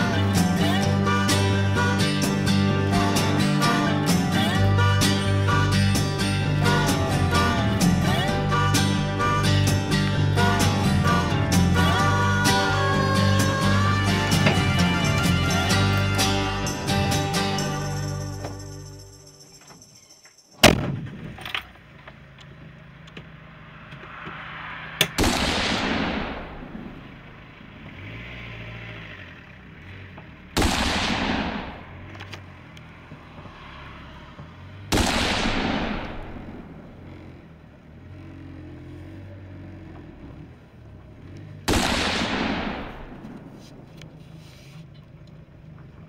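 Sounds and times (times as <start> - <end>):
vehicle engine humming: 0.0 - 46.0
shotgun shots echoing: 25.1 - 27.0, 30.6 - 32.0, 34.9 - 36.7, 41.7 - 43.6.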